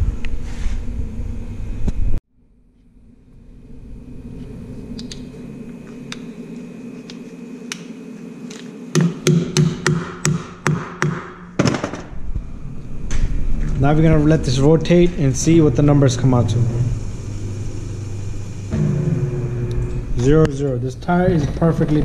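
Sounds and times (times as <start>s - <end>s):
low rumble: 0.0s - 6.9s, 12.1s - 22.0s.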